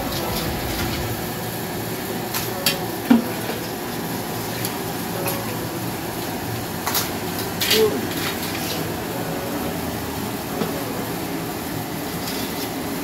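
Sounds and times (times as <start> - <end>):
steady hum: 0.0 - 3.9.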